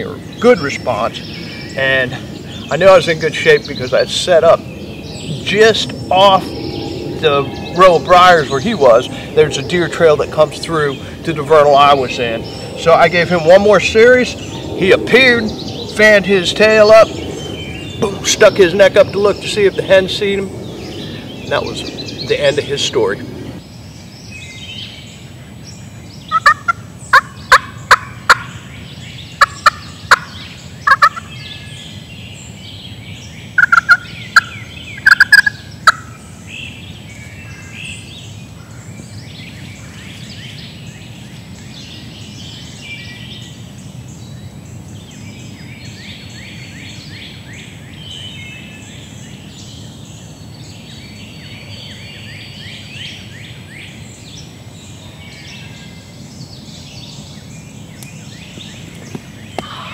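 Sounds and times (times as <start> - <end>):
songbirds chirping: 0.0 - 59.9
turkey calls: 26.3 - 28.6, 29.4 - 31.3, 33.6 - 36.2, 59.6 - 59.9.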